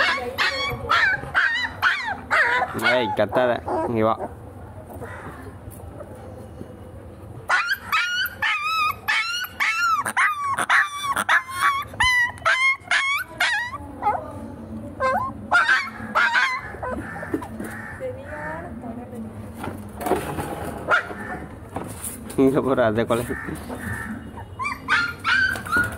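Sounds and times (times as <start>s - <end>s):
puppy barking: 0.0s - 4.4s, 7.5s - 14.2s, 15.0s - 17.5s, 24.5s - 25.9s.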